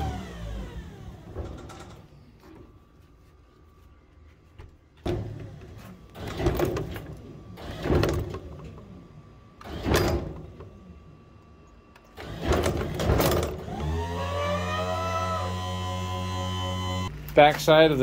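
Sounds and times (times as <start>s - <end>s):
electric motor humming: 12.1s - 17.3s.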